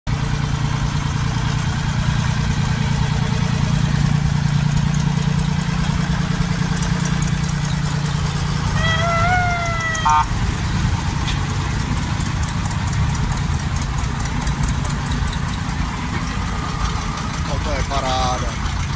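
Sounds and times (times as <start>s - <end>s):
tractor engine running: 0.1s - 18.9s
brief high pitched tone: 8.7s - 10.3s.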